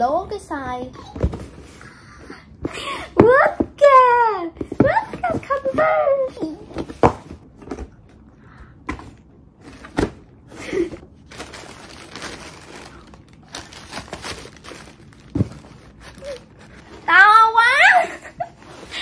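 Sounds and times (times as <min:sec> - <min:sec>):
tissue paper rustling: 0:10.6 - 0:17.2.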